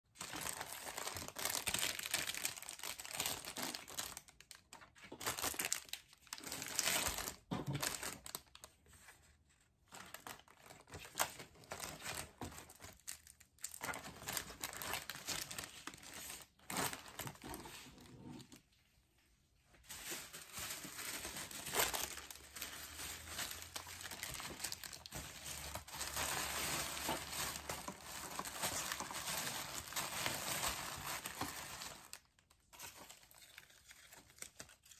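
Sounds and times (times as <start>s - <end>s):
plastic and paper crinkling: 0.1s - 19.0s, 19.6s - 34.9s.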